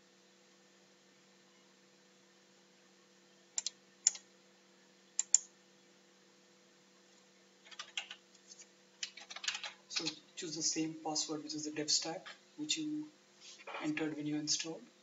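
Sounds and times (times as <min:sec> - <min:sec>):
faint steady hum: 0:00.0 - 0:15.0
computer mouse clicks: 0:03.6 - 0:04.2, 0:05.2 - 0:05.5, 0:07.6 - 0:10.2.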